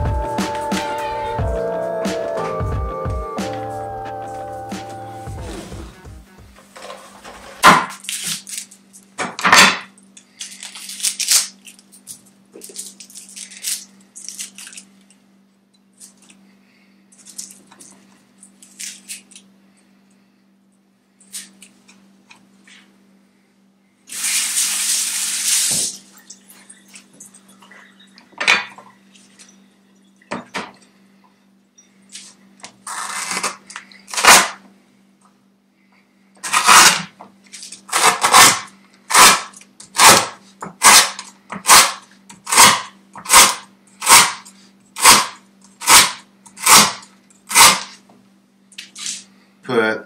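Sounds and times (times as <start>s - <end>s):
cleaver chopping on wooden board: 42.5s - 44.4s.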